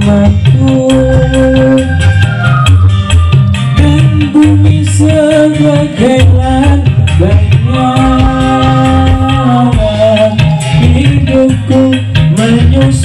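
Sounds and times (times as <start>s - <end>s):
man singing into a microphone: 0.0s - 2.9s, 3.6s - 13.0s
backing song with drums: 0.0s - 13.0s.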